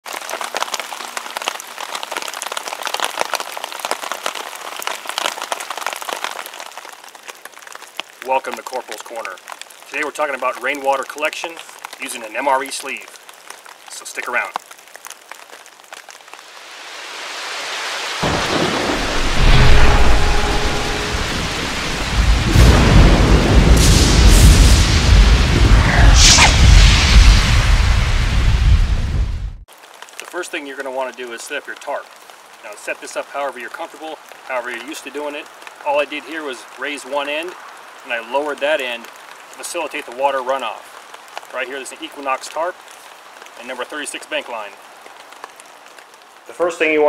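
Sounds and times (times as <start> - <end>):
rain pattering on tarp: 0.0 - 20.7, 22.0 - 27.8, 29.6 - 47.0
rolling thunder rumble: 18.2 - 29.6.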